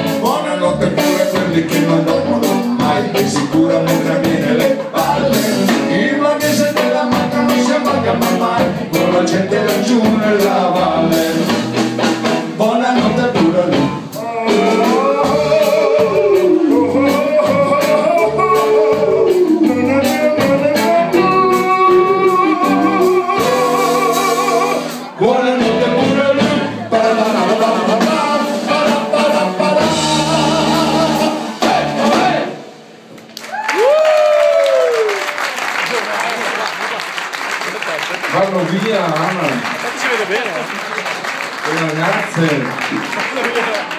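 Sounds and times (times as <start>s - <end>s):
man singing: 0.0s - 11.8s, 12.4s - 32.6s
electric bass: 0.0s - 34.0s
drum kit: 0.0s - 35.2s
electric guitar: 0.0s - 35.2s.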